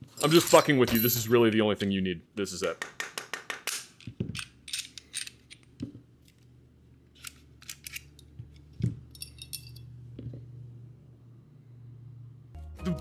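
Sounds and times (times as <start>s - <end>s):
pistol parts clicking and scraping: 3.6s - 6.5s, 7.1s - 9.9s.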